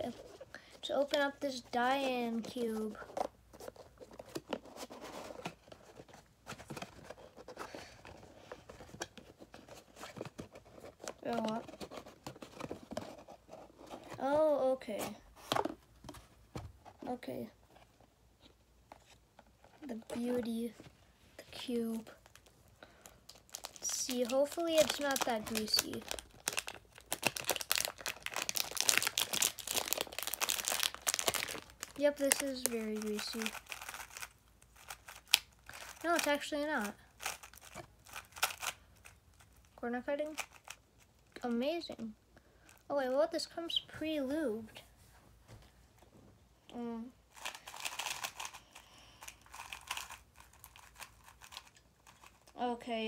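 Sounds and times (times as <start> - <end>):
plastic bag crinkling: 22.1 - 40.8, 47.3 - 52.6.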